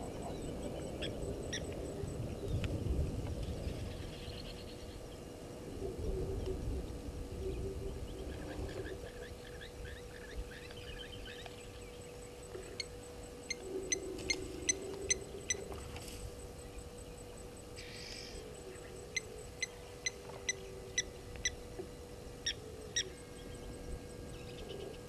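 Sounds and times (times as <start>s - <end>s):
birds chirping: 0.0s - 2.6s
faint steady hum: 0.0s - 25.0s.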